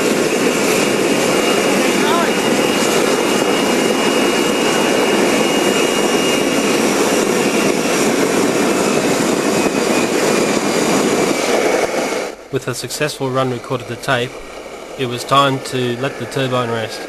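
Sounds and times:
thin high whine: 0.0 - 6.8, 10.6 - 17.0
jet engine rushing: 0.0 - 17.0.

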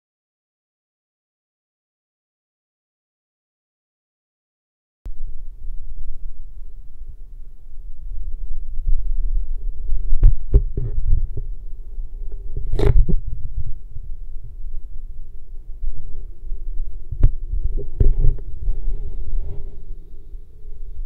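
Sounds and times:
faint hum: 5.1 - 21.0
underwater moving water rumble: 5.1 - 21.0
sharp clicks and knocks: 10.2 - 11.5.

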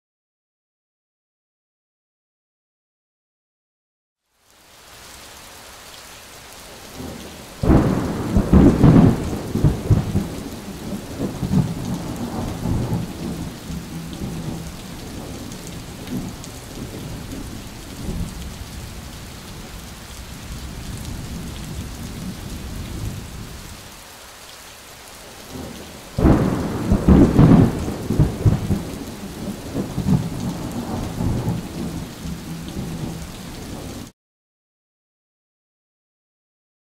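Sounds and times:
steady rain: 4.2 - 34.2
thunder claps rumbling: 7.0 - 23.5, 25.5 - 34.1.

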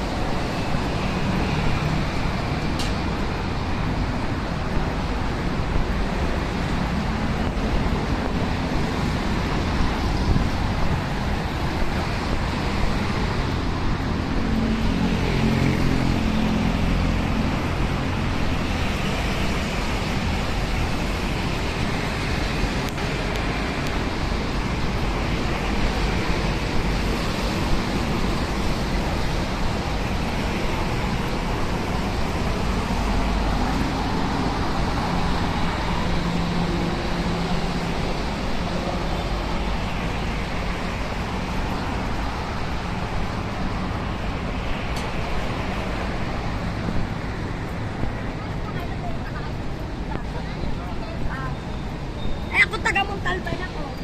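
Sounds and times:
busy road traffic: 0.0 - 54.0
vehicle passing by: 12.0 - 23.3.

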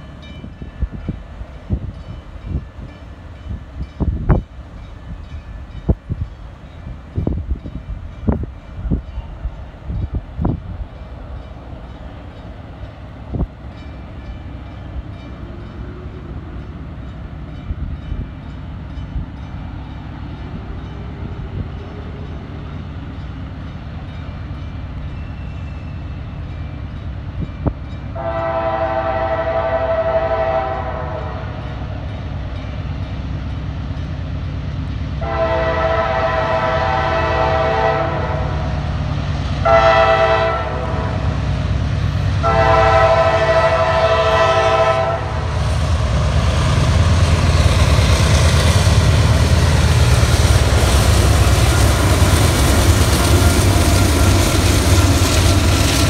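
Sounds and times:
diesel locomotive rumble: 0.0 - 56.0
train air horn blasts: 28.1 - 31.7, 35.2 - 38.9, 39.6 - 41.4, 42.2 - 45.6.

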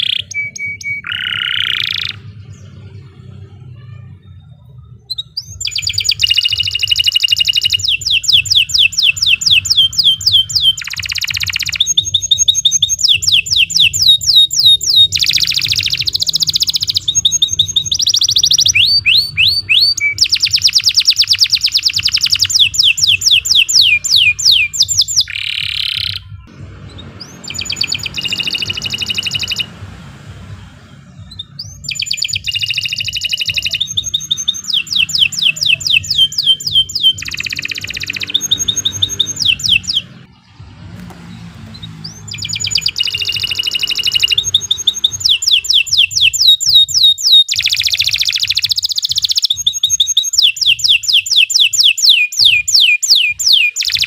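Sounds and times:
canary singing trills: 0.0 - 40.6, 41.2 - 54.0.

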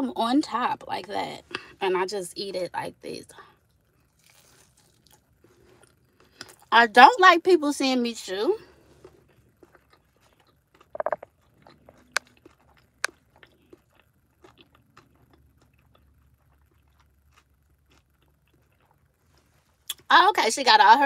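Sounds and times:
person chewing with mouth smacks: 8.9 - 20.0.

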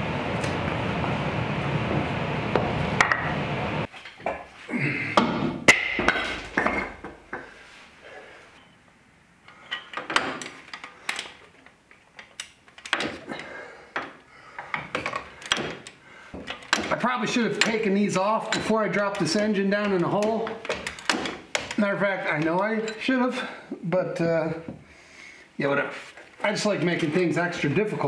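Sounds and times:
metal tools clanking on engine: 17.6 - 19.4, 22.8 - 23.1.

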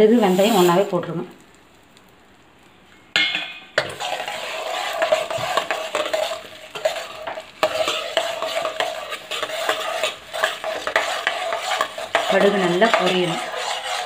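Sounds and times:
ladle scraping seeds in pan: 0.0 - 0.9, 3.8 - 14.0
seeds frying in hot oil: 0.0 - 14.0.

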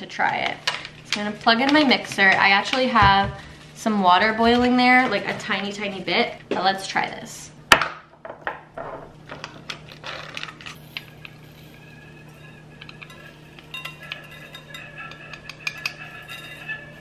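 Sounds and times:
coffee granules rattling: 9.2 - 17.0.

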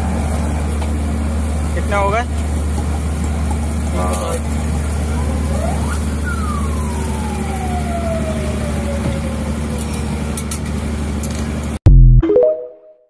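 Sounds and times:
low motor hum: 0.0 - 12.1.

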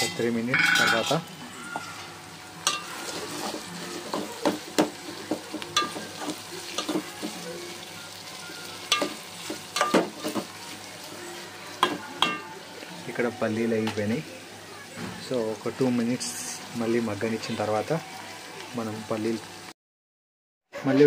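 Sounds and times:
metal spoon clinking and scraping pot: 0.0 - 7.4, 8.8 - 10.6, 11.8 - 12.5
food sizzling in oil: 0.0 - 19.7.

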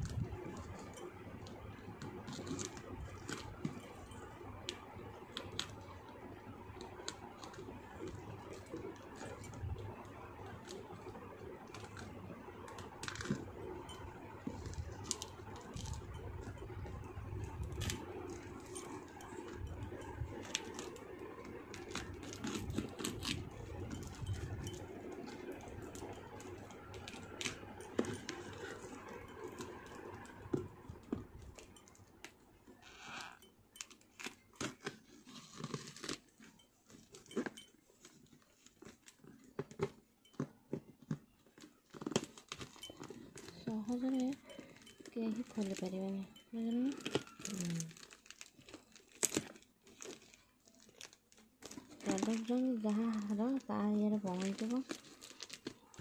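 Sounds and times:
paper crinkling: 10.4 - 32.1, 41.2 - 56.0
tape tearing: 46.9 - 52.6.

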